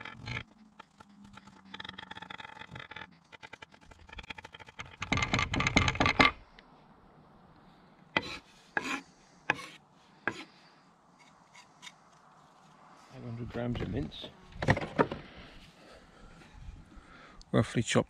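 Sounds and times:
knife chopping on wooden board: 0:08.2 - 0:10.4.

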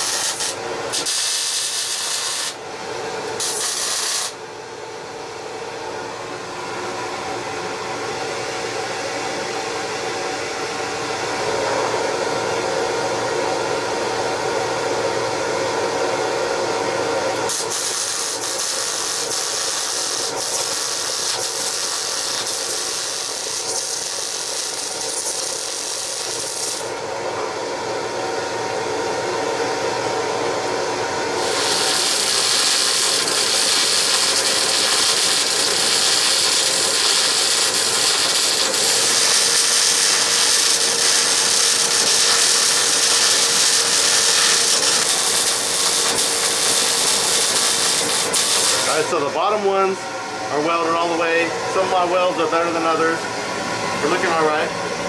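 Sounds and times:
welding arc crackling and sizzling: 0:00.0 - 0:02.6, 0:03.3 - 0:04.4, 0:17.4 - 0:27.0, 0:31.4 - 0:49.2.

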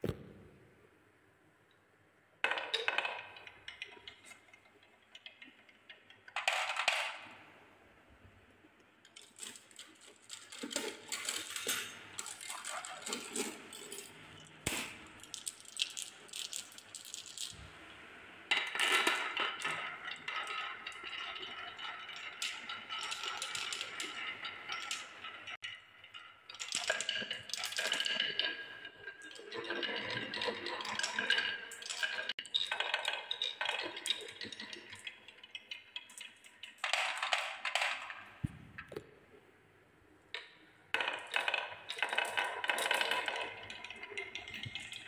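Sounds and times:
balls rattling down wooden track: 0:02.4 - 0:07.3, 0:09.1 - 0:17.6, 0:18.5 - 0:38.4, 0:40.4 - 0:45.0
marbles clacking on wooden run: 0:09.1 - 0:17.6, 0:18.5 - 0:38.3, 0:40.4 - 0:45.0.

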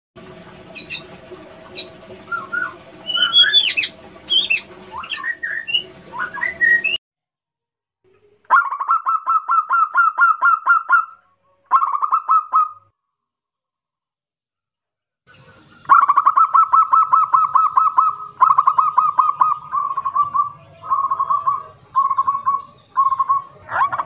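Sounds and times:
bird chirps and gliding whistles: 0:00.6 - 0:07.0, 0:15.9 - 0:23.7
dove cooing: 0:16.2 - 0:24.0.

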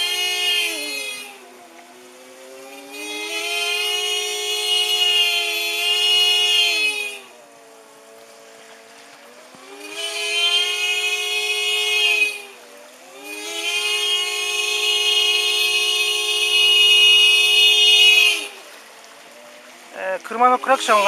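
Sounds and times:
car horn blaring: 0:00.0 - 0:08.6, 0:09.2 - 0:21.0.

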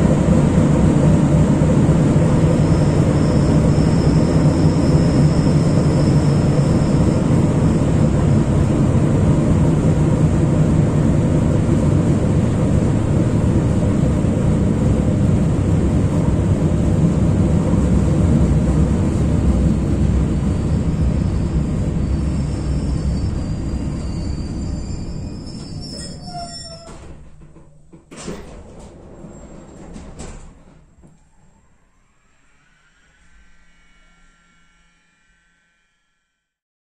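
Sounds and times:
train wheels rumbling on rail: 0:00.0 - 0:31.3.

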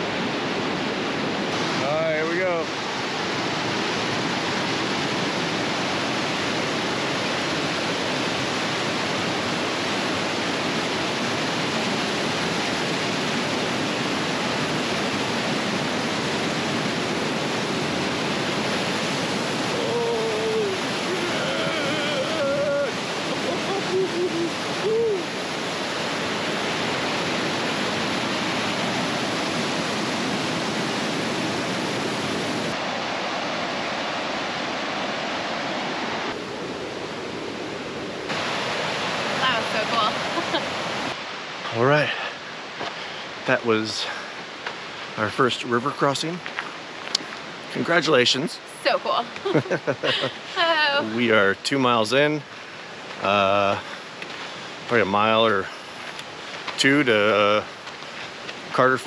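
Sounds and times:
water rushing over rocks: 0:00.0 - 0:59.0
man calling out: 0:19.6 - 0:25.3, 0:49.6 - 0:52.4, 0:53.2 - 0:53.8, 0:56.8 - 0:57.6.

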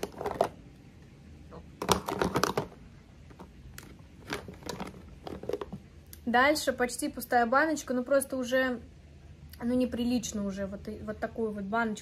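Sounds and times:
plastic jars clicking: 0:00.0 - 0:00.6, 0:01.8 - 0:05.9.

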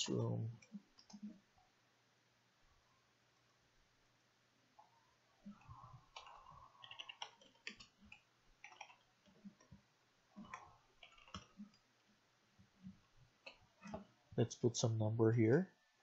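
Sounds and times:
typing on computer keyboard: 0:05.5 - 0:09.8, 0:10.4 - 0:11.8.

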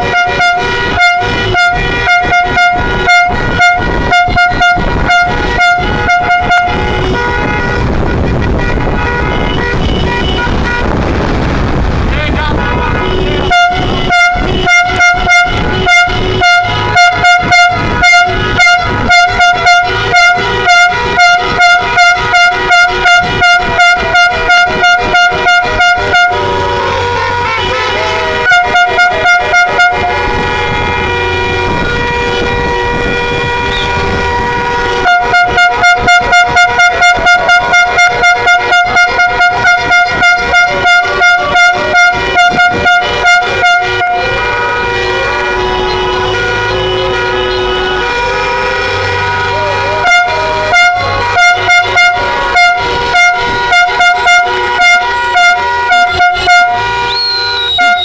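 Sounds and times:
car horns held steady: 0:00.0 - 0:11.3, 0:12.6 - 0:58.0
car horn beeping rapidly: 0:00.0 - 0:58.0.

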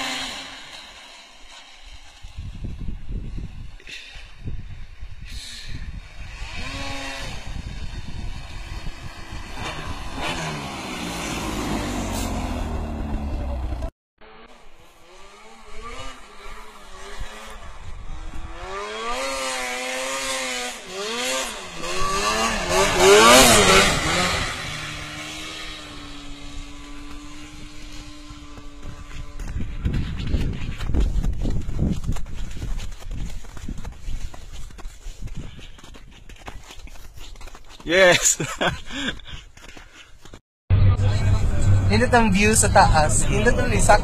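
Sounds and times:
snowmobile engines revving: 0:00.0 - 0:02.3, 0:05.3 - 0:29.9, 0:41.0 - 0:44.0.

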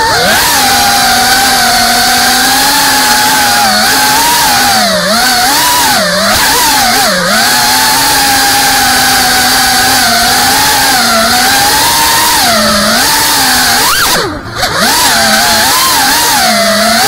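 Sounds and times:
drone propellers buzzing: 0:00.0 - 0:17.0.

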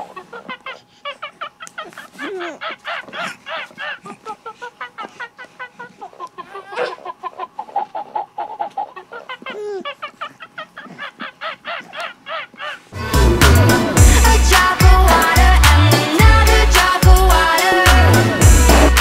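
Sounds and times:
loud music: 0:13.0 - 0:19.0.

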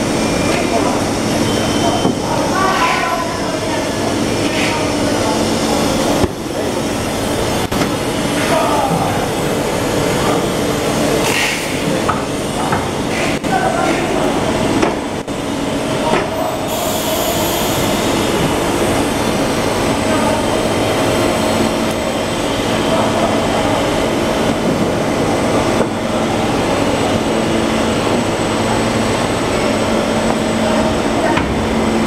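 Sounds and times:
machine hum and rumble: 0:00.0 - 0:32.0
steady humming tones: 0:00.0 - 0:32.0.

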